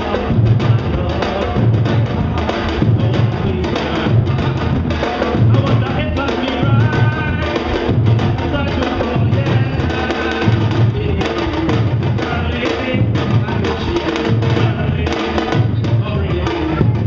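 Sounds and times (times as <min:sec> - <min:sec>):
deep bass drum strokes: 0:00.0 - 0:17.0
drum ensemble playing: 0:00.0 - 0:17.0.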